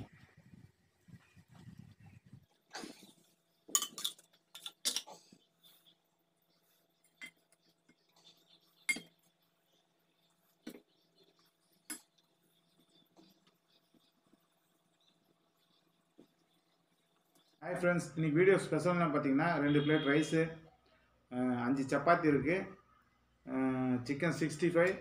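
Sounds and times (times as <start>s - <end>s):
spoon clinking against metal pot: 3.7s - 5.1s, 8.9s - 9.2s.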